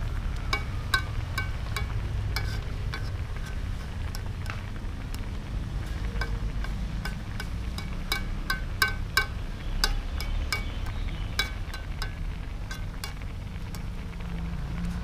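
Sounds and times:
low steady rumble: 0.0 - 15.0
spoon clinking against a wok: 0.5 - 4.3, 6.2 - 13.9.

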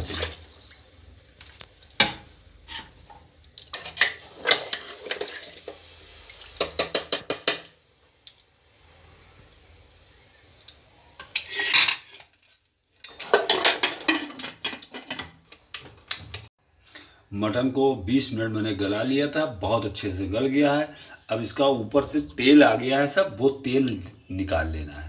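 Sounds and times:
metal ladle scraping a pot: 2.6 - 5.8, 11.2 - 15.3.

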